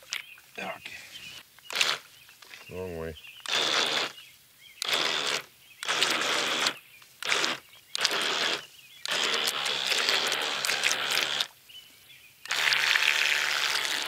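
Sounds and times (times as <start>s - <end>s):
model boat motors whirring: 4.8s - 11.5s, 12.4s - 14.0s.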